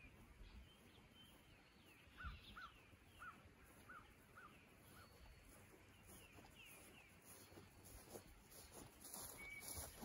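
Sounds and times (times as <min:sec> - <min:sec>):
birds chirping faintly: 0:00.0 - 0:10.0.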